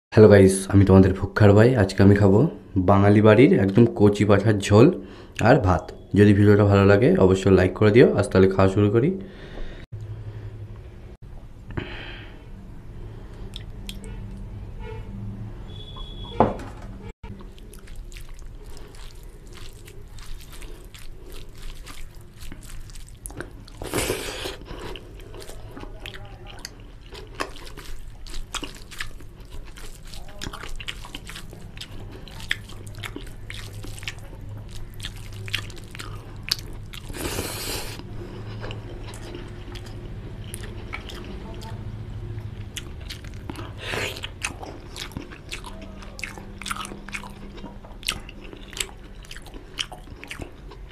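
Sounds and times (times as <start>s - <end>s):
fingers mixing wet food: 17.3s - 41.8s.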